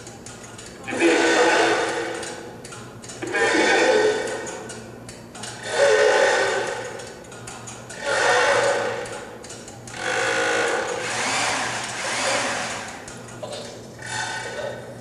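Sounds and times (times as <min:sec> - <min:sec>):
mechanical devices whirring and rattling: 0:00.0 - 0:04.8, 0:05.4 - 0:14.7
steady low hum: 0:00.0 - 0:15.0.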